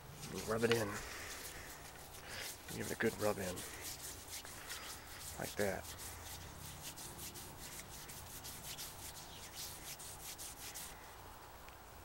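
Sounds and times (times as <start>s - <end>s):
hand rubbing wooden stick: 0.0s - 11.1s.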